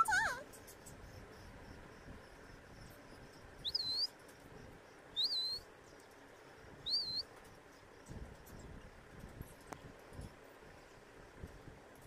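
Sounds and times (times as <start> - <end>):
budgie chirping: 3.6 - 4.1, 5.2 - 5.6, 6.8 - 7.2.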